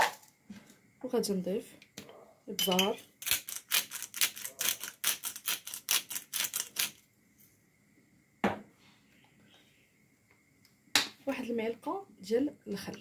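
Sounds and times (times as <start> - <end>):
pepper grinder grinding: 2.7 - 7.0.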